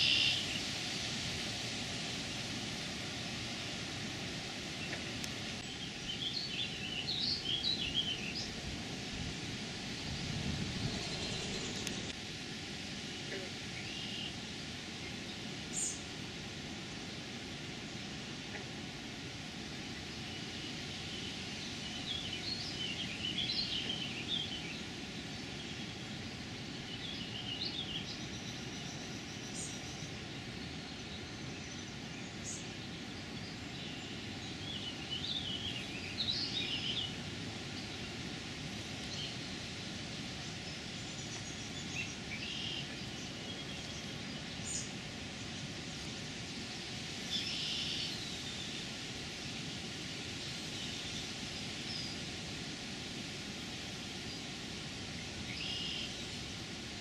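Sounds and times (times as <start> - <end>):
songbirds singing: 0.0 - 0.7, 4.7 - 12.2, 13.1 - 14.4, 19.9 - 49.8, 55.2 - 56.4
steady rushing noise: 0.0 - 57.0.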